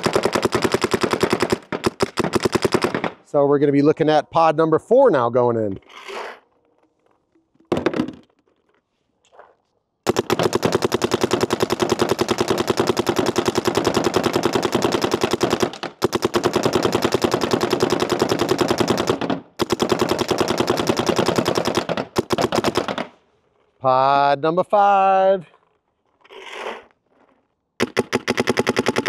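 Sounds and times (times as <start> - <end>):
paintball marker firing rapid shots: 0.0 - 3.2, 10.1 - 23.1, 27.8 - 29.0.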